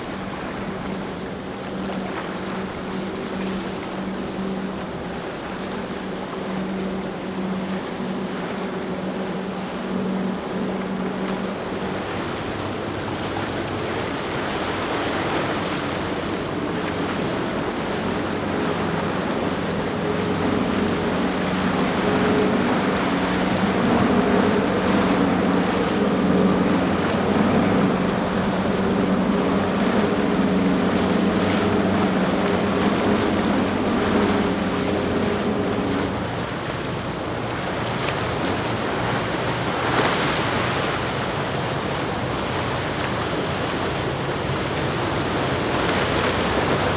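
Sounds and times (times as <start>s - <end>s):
boat engines running: 0.0s - 46.9s
waves and boat wake splashing: 0.0s - 46.9s.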